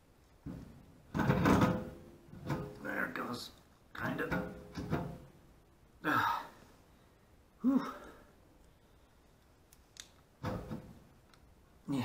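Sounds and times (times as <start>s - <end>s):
man grunting: 7.6s - 8.2s.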